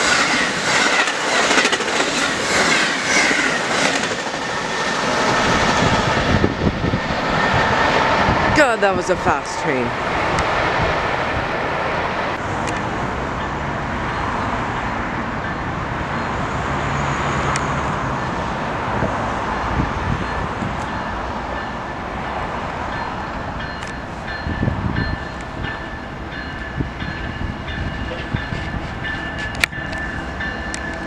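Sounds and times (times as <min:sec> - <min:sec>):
freight train rumbling: 0:00.0 - 0:31.0.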